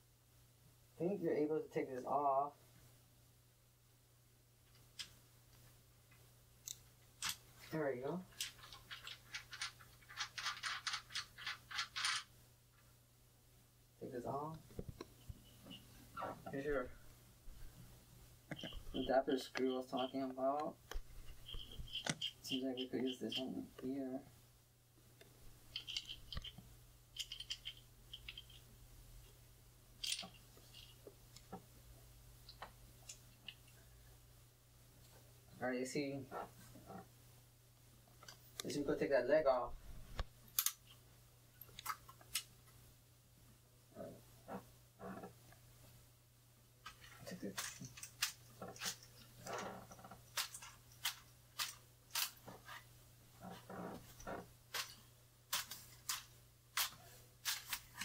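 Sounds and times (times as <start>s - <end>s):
faint steady hum: 0.0s - 58.0s
small sharp clicks and metal taps: 40.2s - 41.0s.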